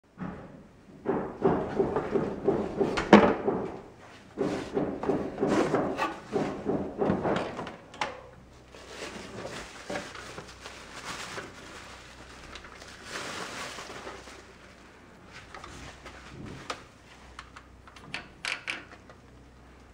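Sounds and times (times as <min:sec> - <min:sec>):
cardboard flaps knocking: 0:01.0 - 0:07.8
bubble-wrap bag crinkling: 0:08.7 - 0:14.9.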